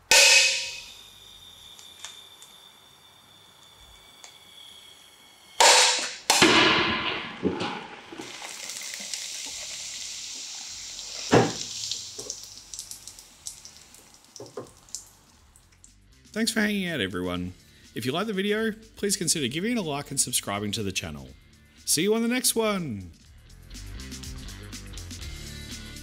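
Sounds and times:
sharp knock: 0.0 - 0.9
can bursting with loud bang: 0.0 - 1.0, 5.6 - 10.0, 11.3 - 12.3
drink spraying and fizzing: 7.0 - 15.9.

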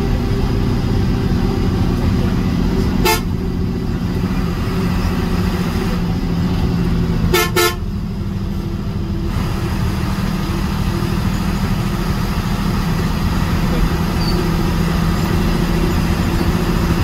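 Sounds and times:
bus rumbling: 0.0 - 17.0
bus horn toots: 2.8 - 3.6, 7.2 - 8.0.

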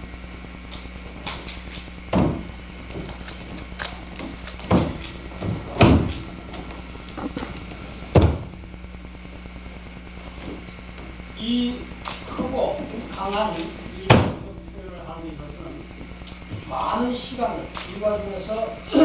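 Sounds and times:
feet stamping on wooden floor: 1.2 - 6.8, 8.1 - 8.6.

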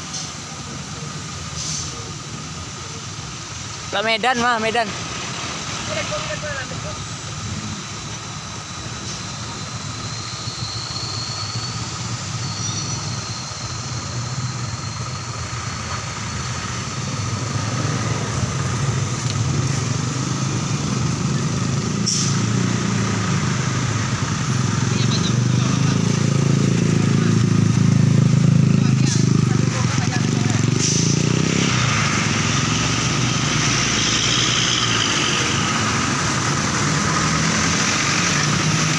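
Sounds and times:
tyre hiss on wet road: 0.0 - 25.0, 25.6 - 38.9
traffic engine rumble: 0.0 - 38.9.

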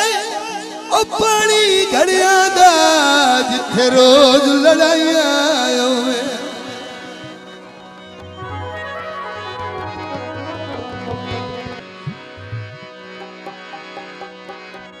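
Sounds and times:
sustained instrumental melody: 6.5 - 15.0
drum beat: 11.5 - 13.0.

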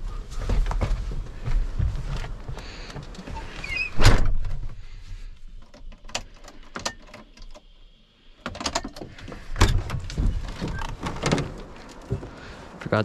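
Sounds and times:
clicks and knocks of door: 8.4 - 11.6.

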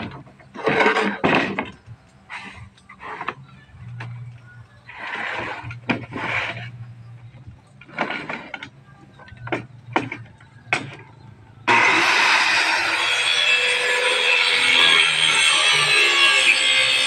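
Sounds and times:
knocks and clatters of handling: 0.0 - 4.4, 5.2 - 11.2
circular saw cutting plywood: 11.7 - 17.0.

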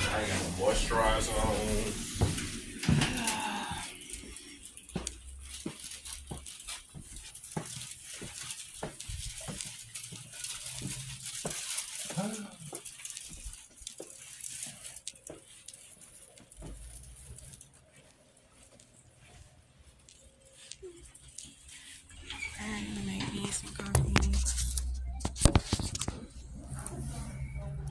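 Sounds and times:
footsteps on hard floor: 0.0 - 22.1
jacket rustling: 0.0 - 22.4.

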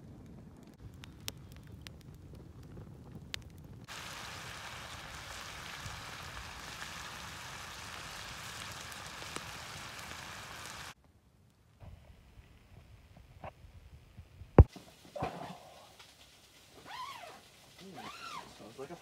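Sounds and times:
fire crackle: 0.0 - 19.0
meat sizzling in a skillet: 3.9 - 11.0.

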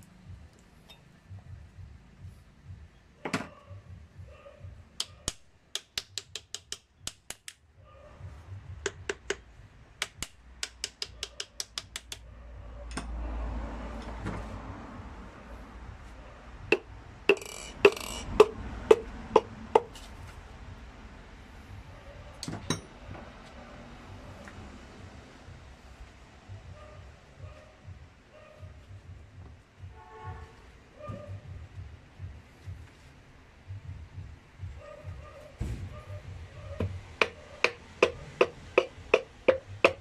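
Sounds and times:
sharp knocks tapping piston: 5.0 - 7.6, 8.8 - 12.2, 16.7 - 19.9, 36.8 - 40.0
piston ring compressor clicking: 16.7 - 19.5.

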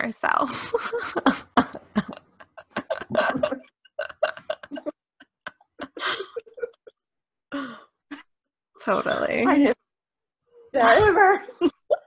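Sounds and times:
women laughing: 0.5 - 6.9.

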